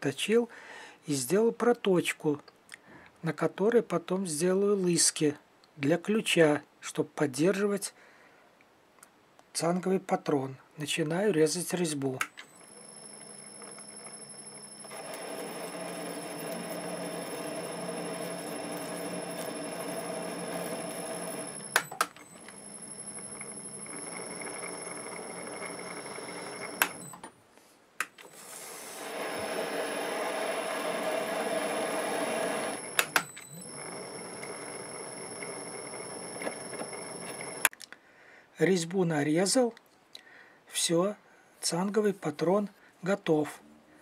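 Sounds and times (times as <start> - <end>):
faint high whine: 11.7 - 27.3, 28.2 - 37.7
sharp clicks: 33.0 - 33.5.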